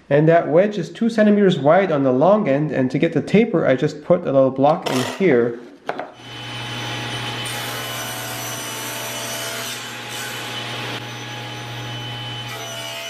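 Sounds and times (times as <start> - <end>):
table saw cutting wood: 6.2 - 13.0.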